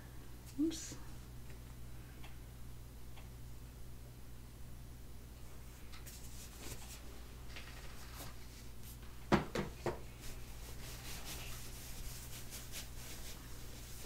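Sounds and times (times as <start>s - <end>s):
hand rubbing crinkly diaper: 10.1s - 14.0s.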